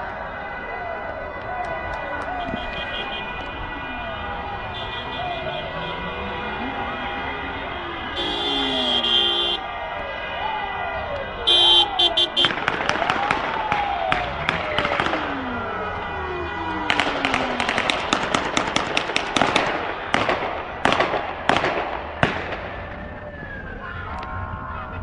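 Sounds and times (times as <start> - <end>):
gunshots: 11.5 - 16.1, 16.8 - 22.9.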